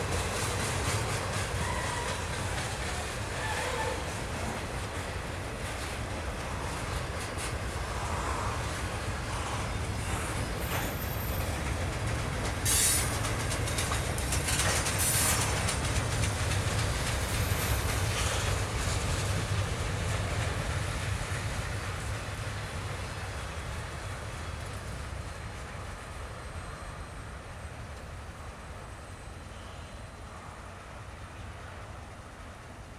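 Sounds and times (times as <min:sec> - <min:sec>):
freight cars rumbling on rails: 0:00.0 - 0:32.9
wheels clicking over rail joints: 0:08.8 - 0:22.2.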